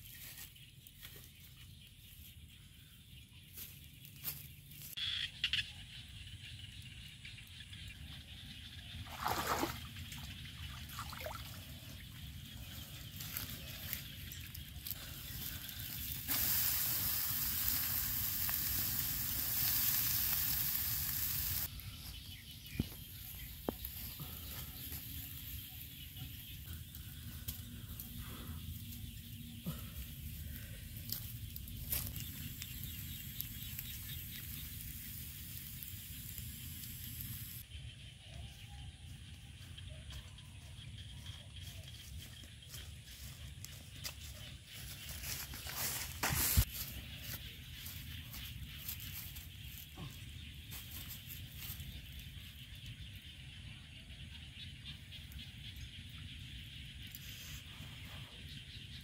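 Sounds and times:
embers crackling: 0:11.7 - 0:37.6
food sizzling on grill: 0:15.6 - 0:21.7, 0:33.1 - 0:37.6
loud hiss: 0:15.9 - 0:21.7.

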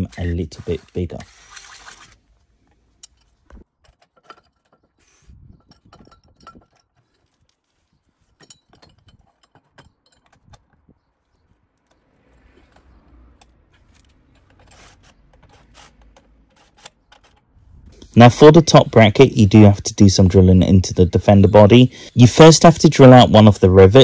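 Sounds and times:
metal parts clicking and clinking: 0:03.0 - 0:10.9.

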